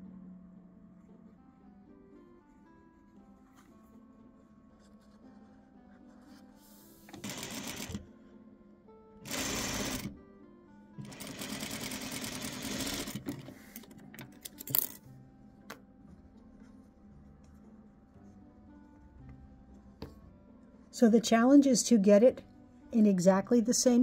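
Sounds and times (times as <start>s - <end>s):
sewing machine stitching: 7.1s - 8.0s, 9.2s - 10.1s, 11.0s - 13.6s.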